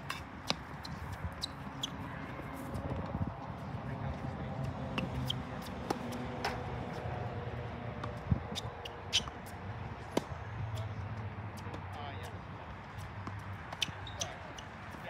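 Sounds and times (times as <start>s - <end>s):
tennis balls struck by rackets: 4.9s - 7.1s, 8.8s - 11.0s.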